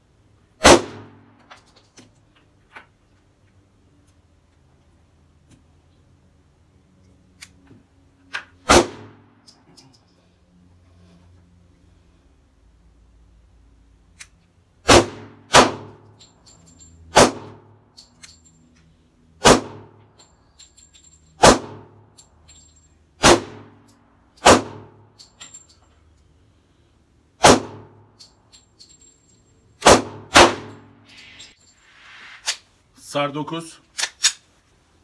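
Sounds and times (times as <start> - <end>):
pistol shots with echo: 0.6 - 1.2, 8.7 - 9.2, 14.9 - 16.0, 19.4 - 19.9, 23.2 - 23.7, 24.4 - 24.9, 27.4 - 27.9, 29.8 - 30.8.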